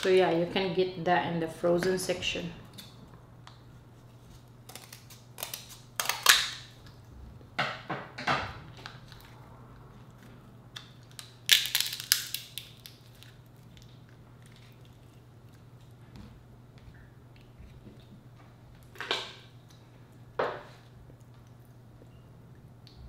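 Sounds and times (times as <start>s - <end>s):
crab shell crunching and snapping: 4.6s - 6.8s, 10.2s - 15.6s.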